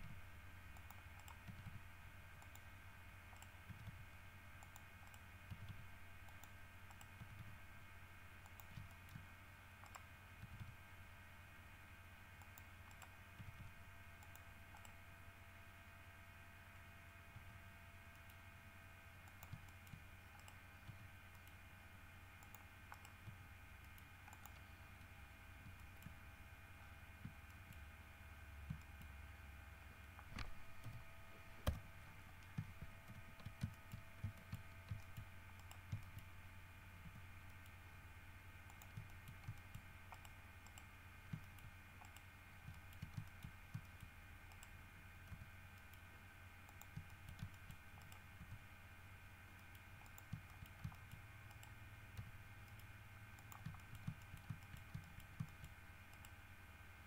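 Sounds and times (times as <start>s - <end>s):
faint steady whines: 0.0s - 57.0s
low steady hum: 0.0s - 57.0s
keyboard and mouse clicks: 0.8s - 1.8s, 2.4s - 2.7s, 3.3s - 7.6s, 8.4s - 10.8s, 12.3s - 15.0s, 19.2s - 21.7s, 22.4s - 26.2s, 27.2s - 27.9s, 28.6s - 29.2s, 30.1s - 36.3s, 37.0s - 37.8s, 38.7s - 48.7s, 49.6s - 56.4s.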